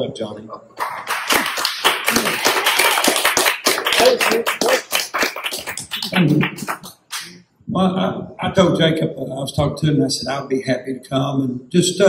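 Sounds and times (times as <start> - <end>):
audience applauding: 0.8 - 7.3.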